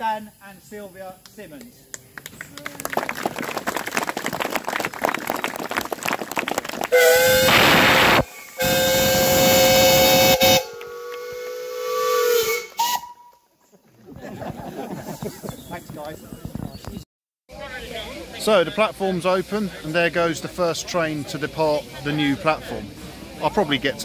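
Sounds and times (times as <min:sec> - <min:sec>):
crowd clapping: 0:01.9 - 0:07.5, 0:10.7 - 0:11.3
steam locomotive whistle: 0:06.9 - 0:13.4.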